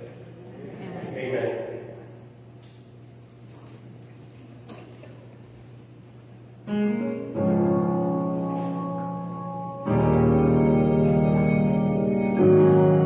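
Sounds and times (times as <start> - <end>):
electronic keyboard chords: 6.6 - 13.0.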